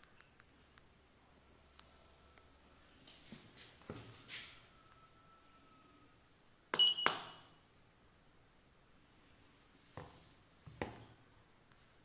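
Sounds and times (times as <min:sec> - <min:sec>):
short high electronic beep: 0:06.8 - 0:07.5.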